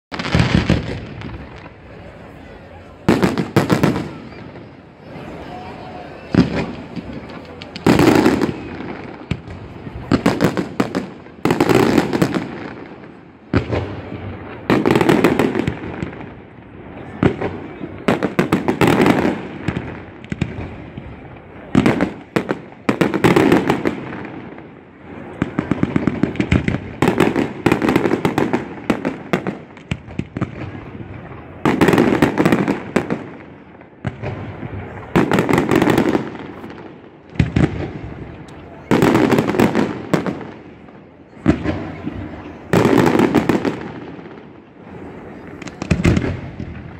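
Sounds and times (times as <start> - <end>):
fireworks bursting and crackling: 0.1 - 46.9.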